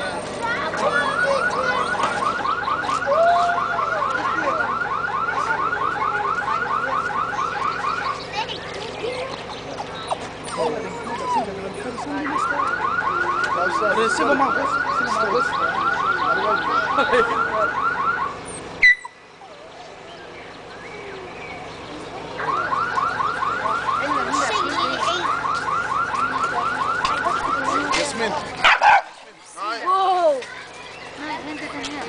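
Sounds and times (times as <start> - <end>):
car alarm siren whooping: 0.9 - 8.2, 11.8 - 19.6, 22.4 - 28.0.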